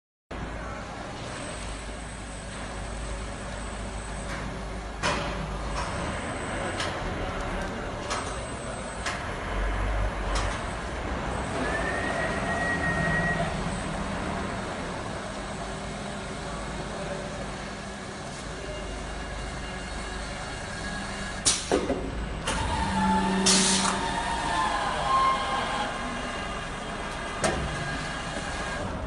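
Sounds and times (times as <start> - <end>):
machine motors humming: 1.2 - 29.0
short machine whine: 22.5 - 26.9.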